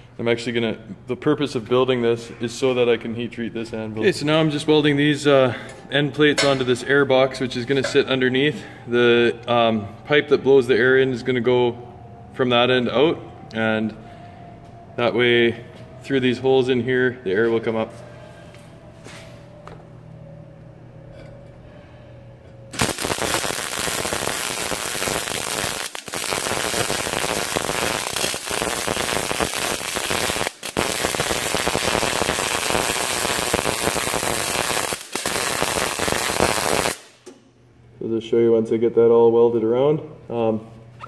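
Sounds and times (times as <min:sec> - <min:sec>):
low hum: 0:03.0 - 0:22.8
welder arc crackling: 0:22.7 - 0:37.1.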